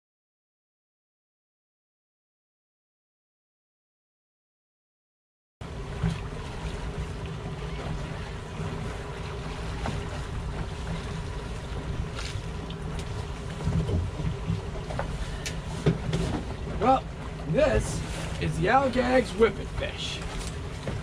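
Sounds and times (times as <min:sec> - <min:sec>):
outboard motors running: 0:05.6 - 0:21.0
water rushing: 0:05.6 - 0:21.0.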